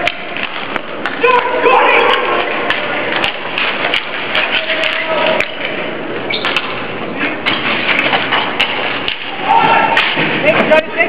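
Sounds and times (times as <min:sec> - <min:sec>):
hockey sticks and ball clacking: 0:00.0 - 0:11.0
person shouting: 0:01.2 - 0:02.3.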